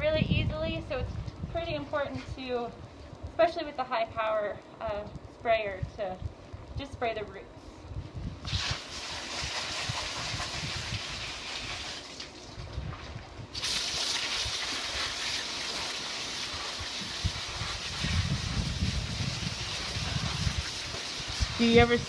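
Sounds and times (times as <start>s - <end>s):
water spray hissing: 8.4s - 12.2s, 13.5s - 22.0s.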